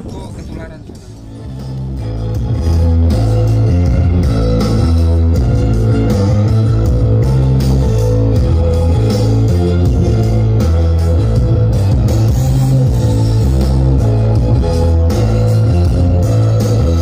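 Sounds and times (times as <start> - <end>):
heavy bass notes: 0.0 - 17.0
electric guitar: 1.0 - 17.0.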